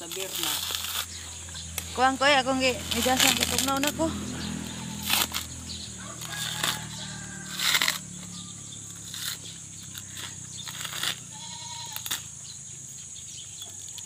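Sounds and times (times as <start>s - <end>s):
coconut husk tearing: 0.0s - 14.0s
animal bleat: 4.4s - 5.3s, 10.8s - 12.2s.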